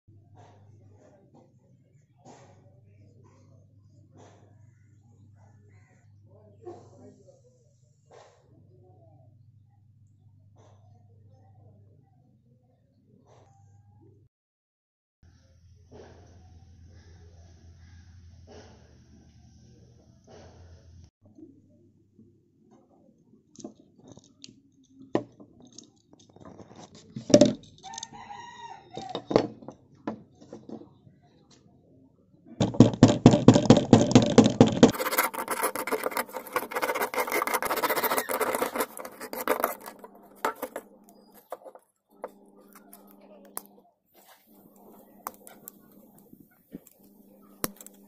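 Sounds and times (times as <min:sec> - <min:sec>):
rooster crowing: 0:27.8 - 0:29.3
metal scraping on trowel blade: 0:34.7 - 0:41.8.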